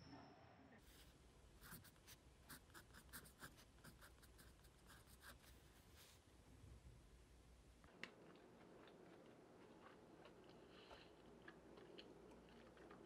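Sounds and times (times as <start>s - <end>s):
pen scratching on paper: 1.6s - 5.5s.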